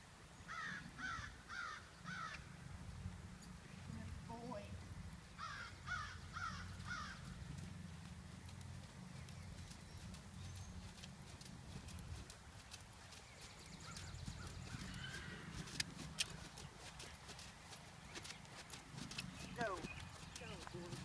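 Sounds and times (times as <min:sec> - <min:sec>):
crow cawing: 0:00.5 - 0:02.4, 0:05.4 - 0:07.3, 0:14.8 - 0:15.5
low steady rumble: 0:02.0 - 0:21.0
horse hoofbeats on sand: 0:07.1 - 0:21.0.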